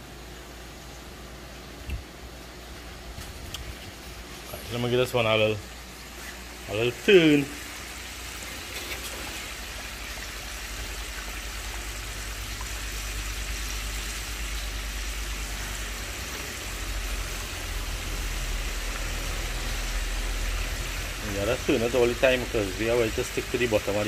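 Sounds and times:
chicken deep-frying in oil: 4.8 - 24.0.

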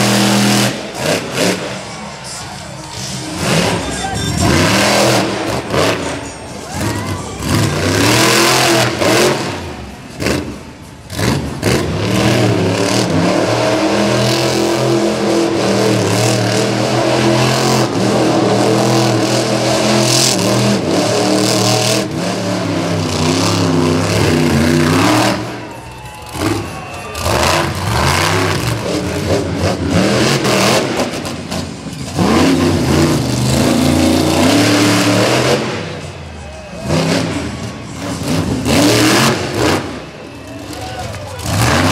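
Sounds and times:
truck engines revving: 0.0 - 41.9.

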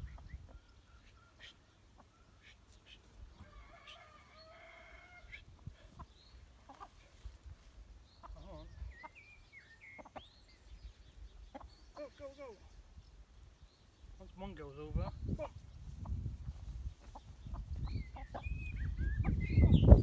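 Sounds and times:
chickens squawking: 0.0 - 7.3, 8.2 - 10.4, 11.3 - 12.2, 14.9 - 20.0
young cockerel crowing: 3.3 - 5.5.

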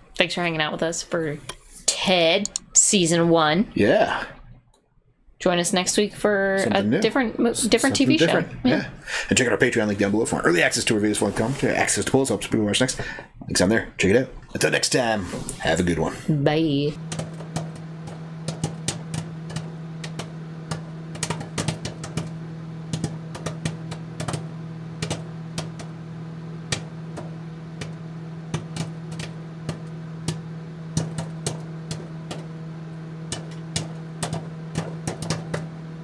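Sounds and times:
low electrical hum: 0.0 - 36.0
static clicks and crackles: 17.0 - 36.0.

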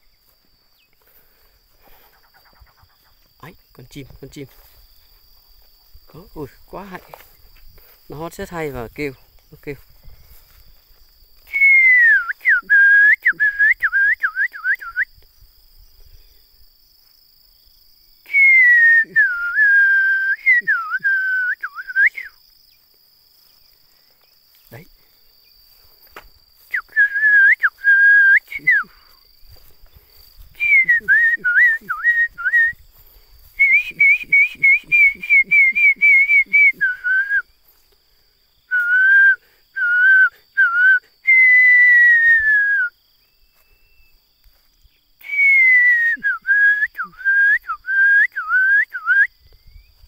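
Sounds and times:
high insect drone: 0.0 - 50.0
person whistling bird-like phrases: 11.5 - 15.1, 18.3 - 22.4, 26.7 - 29.1, 30.6 - 32.8, 33.6 - 37.5, 38.7 - 42.9, 45.2 - 49.4.

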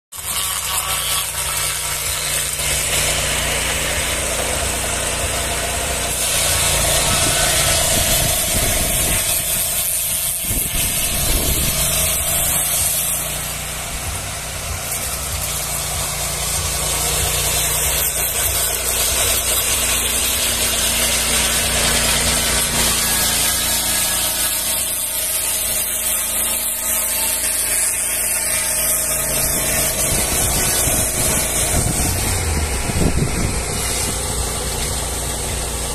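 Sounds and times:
circular saw blade cutting log: 0.1 - 35.9
petrol engine running: 13.2 - 18.9.

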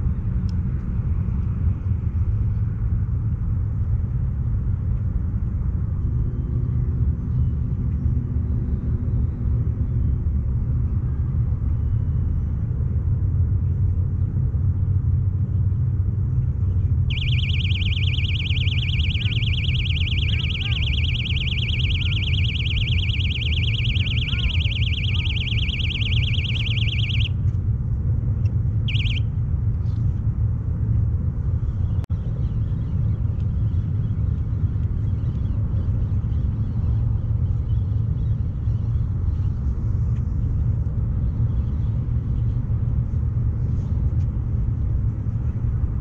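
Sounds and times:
high fast-pulsing buzz: 17.1 - 27.3, 28.9 - 29.2.

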